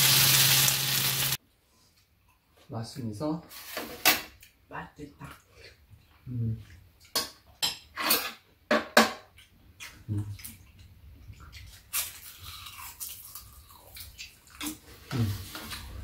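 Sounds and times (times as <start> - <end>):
chewing: 9.3 - 16.0.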